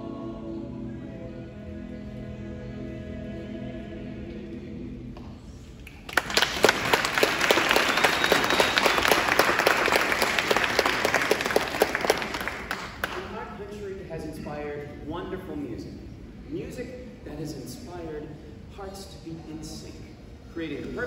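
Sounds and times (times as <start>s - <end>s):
vocal group singing chord: 0.0s - 5.5s
audience applause: 5.8s - 13.4s.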